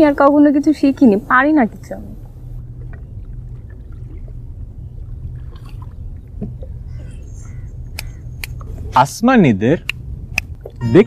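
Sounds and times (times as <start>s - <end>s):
low rumble: 0.0s - 11.0s
water lapping around a boat: 0.0s - 11.0s.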